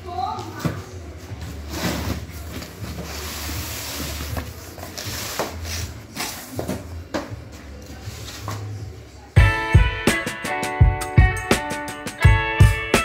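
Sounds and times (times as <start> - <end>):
cardboard rustling and scraping: 1.2 - 7.1.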